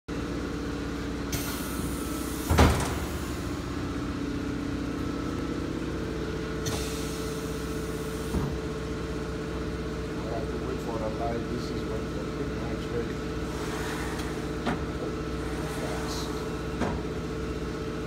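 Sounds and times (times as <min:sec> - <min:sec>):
vacuum forming machine motor hum: 0:00.2 - 0:18.0
loud clunk: 0:02.4 - 0:03.5, 0:16.7 - 0:17.1.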